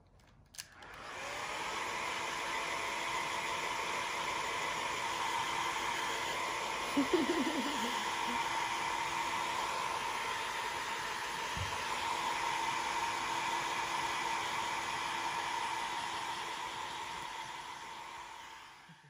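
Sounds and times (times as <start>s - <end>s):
hair dryer running: 0.6s - 19.0s.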